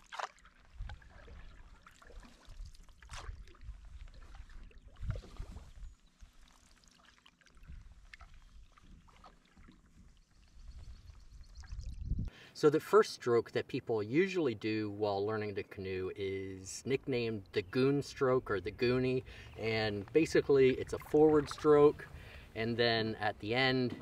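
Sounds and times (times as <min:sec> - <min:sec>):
paddle splashing in water: 0:00.0 - 0:10.7, 0:19.2 - 0:22.6.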